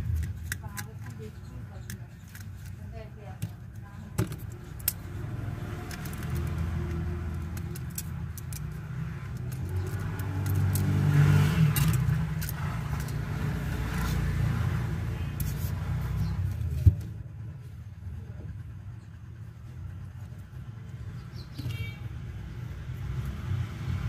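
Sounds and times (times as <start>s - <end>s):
vehicle engine rumbling past: 5.0s - 24.0s.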